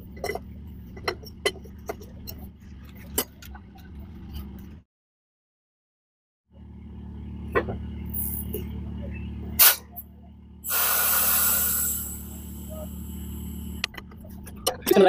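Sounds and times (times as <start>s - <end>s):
truck engine idling: 0.0s - 4.8s, 6.5s - 15.0s
air hissing from fitting: 9.6s - 9.8s, 10.7s - 13.9s.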